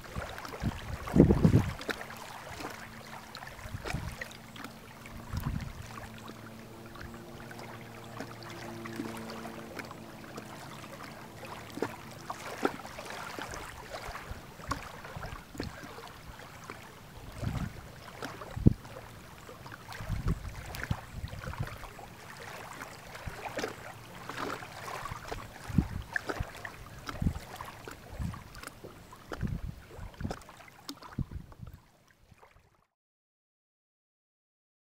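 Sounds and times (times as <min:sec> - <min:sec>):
wind buffeting microphone: 0:00.1 - 0:02.0, 0:03.6 - 0:04.2, 0:05.1 - 0:06.0, 0:17.3 - 0:18.9, 0:19.9 - 0:21.9, 0:25.1 - 0:28.6, 0:29.3 - 0:30.4, 0:31.1 - 0:31.8.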